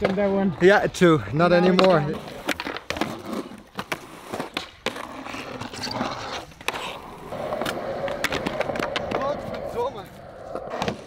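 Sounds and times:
skateboard clacks: 0.0s - 0.5s, 1.2s - 11.0s
skateboard rolling on concrete: 0.0s - 11.0s
skateboard grinding on ledge: 1.6s - 11.0s.

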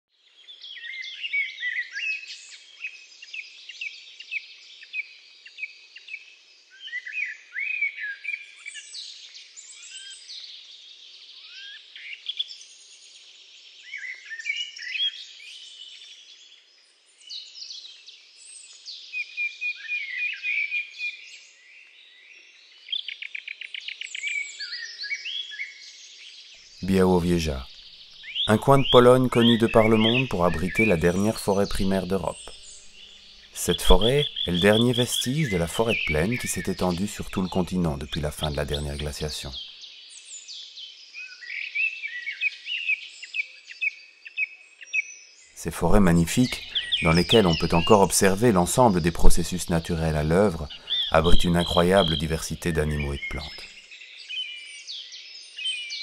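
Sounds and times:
songbirds singing and chirping: 0.2s - 56.0s
bird trilling: 26.8s - 39.6s, 45.6s - 53.6s.

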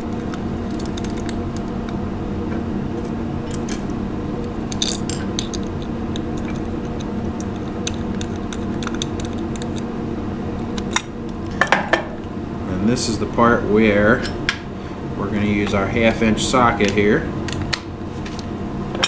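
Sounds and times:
low steady hum: 0.0s - 19.0s
metal washers and nuts clinking: 4.7s - 5.6s.

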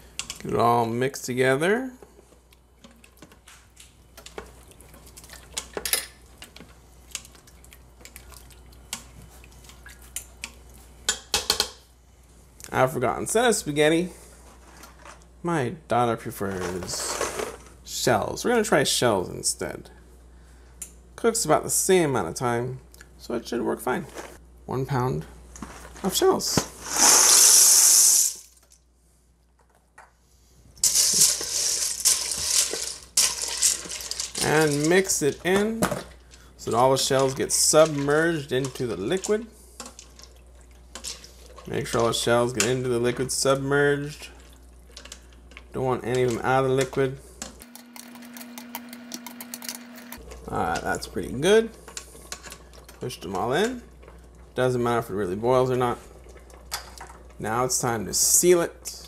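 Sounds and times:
dry pasta pouring into pot: 26.8s - 28.7s, 30.8s - 35.4s
pasta shells clattering in pot: 30.8s - 42.7s.

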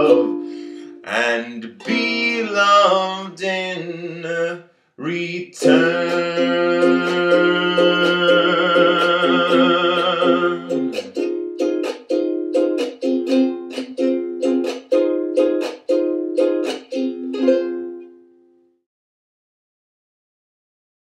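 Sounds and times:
ukulele strumming chords: 0.0s - 3.2s, 5.6s - 18.7s
man singing long note: 1.0s - 10.9s.

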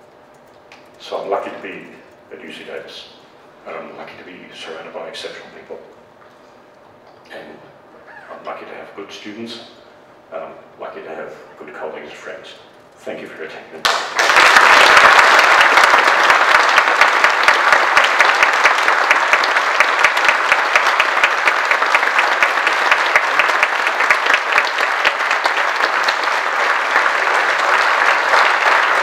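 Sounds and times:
large audience applauding: 13.8s - 29.0s.

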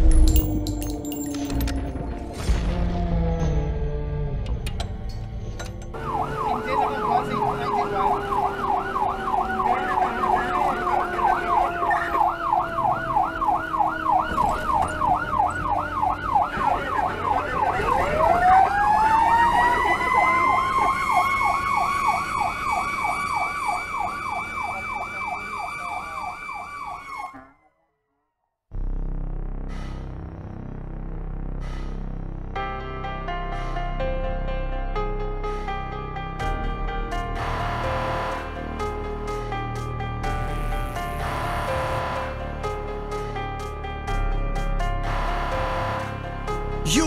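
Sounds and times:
siren wailing: 5.9s - 27.8s
electronic siren yelping: 6.0s - 27.7s.

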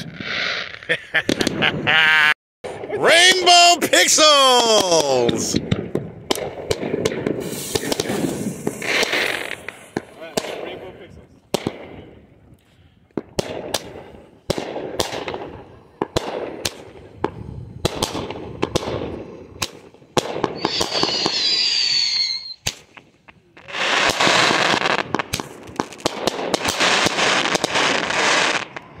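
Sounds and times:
fireworks pops and bangs: 0.0s - 1.7s, 4.0s - 12.2s, 13.1s - 29.0s
fireworks crackling: 0.0s - 1.9s, 2.8s - 11.9s, 13.1s - 29.0s
firework whistle: 7.4s - 9.7s, 20.4s - 22.8s.

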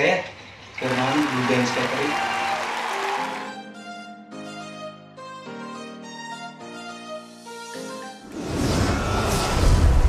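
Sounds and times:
whoosh with deep rumble: 8.3s - 10.0s.

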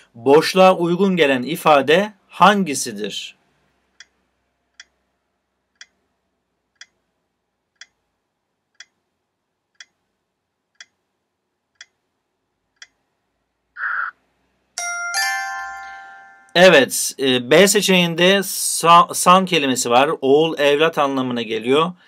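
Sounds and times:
clock ticking: 3.9s - 5.0s, 5.7s - 6.1s, 6.7s - 7.1s, 7.7s - 8.1s, 8.7s - 9.1s, 9.7s - 12.1s, 12.7s - 13.1s.

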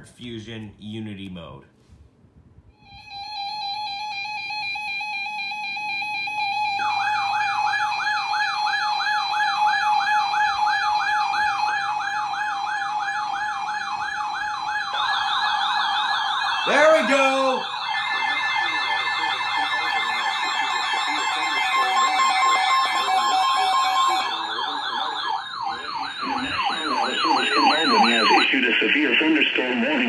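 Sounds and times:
electronic siren wail: 2.8s - 30.0s
high fast siren warble: 2.8s - 30.0s
steady siren tone: 2.8s - 30.0s.

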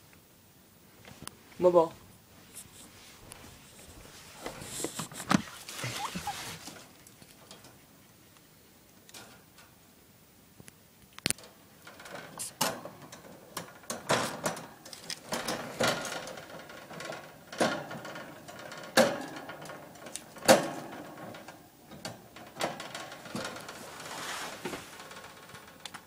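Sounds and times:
wire cage bars rattling: 11.4s - 26.0s.

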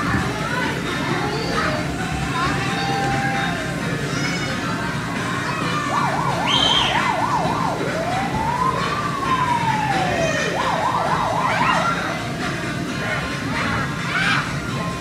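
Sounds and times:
warbling siren: 5.7s - 12.5s.

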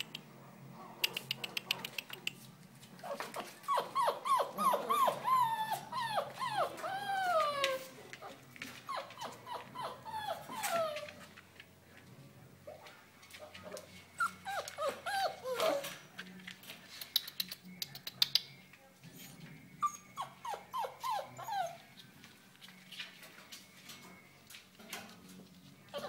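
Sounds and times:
puppies whimpering and yelping: 3.0s - 11.3s, 14.1s - 16.0s, 19.1s - 22.0s.

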